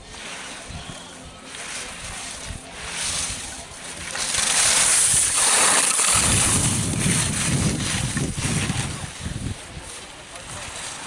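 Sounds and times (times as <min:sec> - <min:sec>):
skis scraping on snow: 0:00.0 - 0:11.0
wind buffeting microphone: 0:00.6 - 0:10.8.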